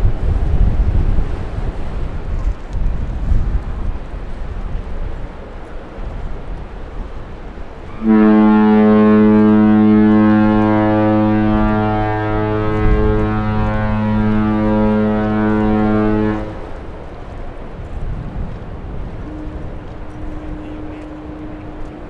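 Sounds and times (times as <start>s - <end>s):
deep ship horn blast: 7.8s - 16.8s, 18.8s - 22.0s.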